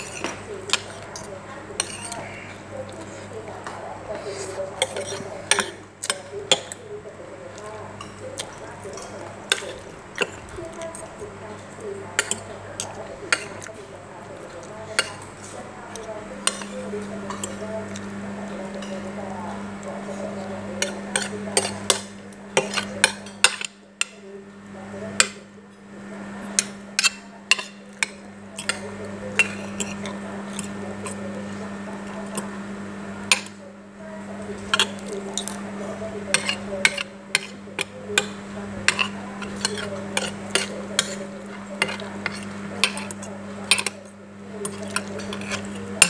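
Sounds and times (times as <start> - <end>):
cutlery clinking against plate: 0.0 - 6.8, 8.0 - 11.0, 12.2 - 13.8, 14.6 - 18.1, 20.8 - 24.2, 26.5 - 31.2, 33.2 - 33.6, 34.6 - 35.7, 36.3 - 46.0
steady low hum: 0.0 - 46.0.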